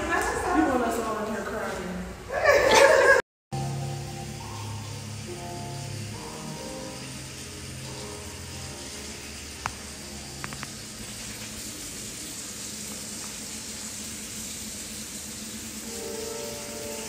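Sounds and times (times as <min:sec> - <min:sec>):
soft background music: 0:03.6 - 0:12.1, 0:15.8 - 0:17.0
steady hiss: 0:03.6 - 0:17.0.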